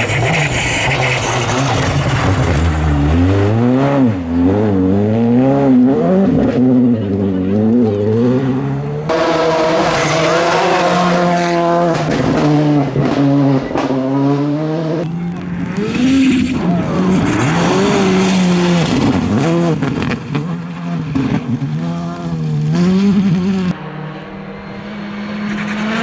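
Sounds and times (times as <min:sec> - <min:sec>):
rally car engine revving: 0:00.0 - 0:26.0.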